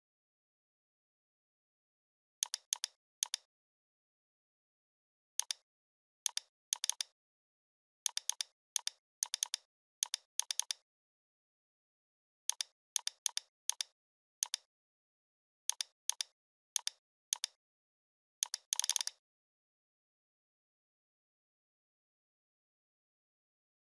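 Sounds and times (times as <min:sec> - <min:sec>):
computer mouse clicking: 0:02.4 - 0:03.5, 0:05.4 - 0:05.6, 0:06.3 - 0:07.2, 0:08.1 - 0:10.8, 0:12.5 - 0:14.7, 0:15.7 - 0:17.6, 0:18.4 - 0:19.2.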